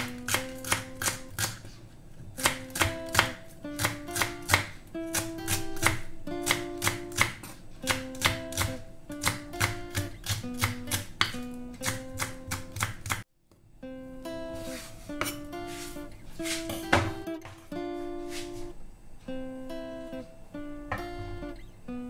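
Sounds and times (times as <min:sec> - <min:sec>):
acoustic guitar music: 0:00.0 - 0:01.7, 0:02.3 - 0:13.2, 0:13.8 - 0:22.0
knife chopping on wooden board: 0:00.0 - 0:01.8, 0:02.4 - 0:13.2, 0:16.5 - 0:17.6.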